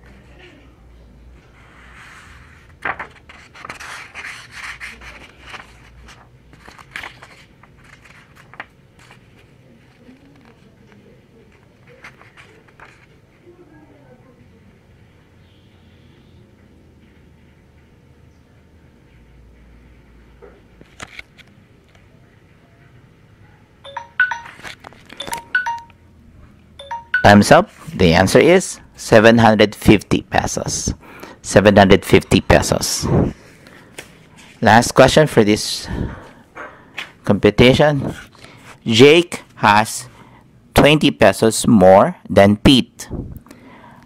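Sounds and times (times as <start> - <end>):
electronic chime alert: 23.9 - 25.9, 26.8 - 27.5.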